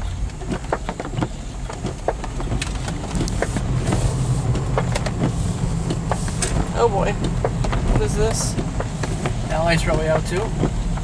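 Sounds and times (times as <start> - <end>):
car hum and tyres on wet road: 0.0 - 11.0
raindrops tapping on windshield: 0.0 - 11.0.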